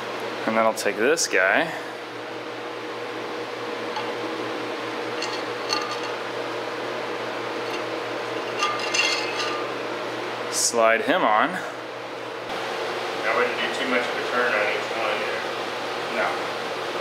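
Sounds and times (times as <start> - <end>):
steady background hum: 0.0 - 17.0
steel ring clinking on rods: 5.2 - 6.2, 8.5 - 9.7.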